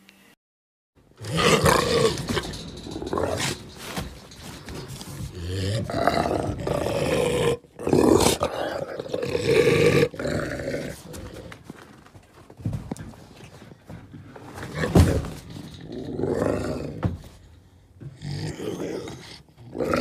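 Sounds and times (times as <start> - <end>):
big cat roaring: 1.2 - 11.6, 14.7 - 17.2, 18.1 - 20.0.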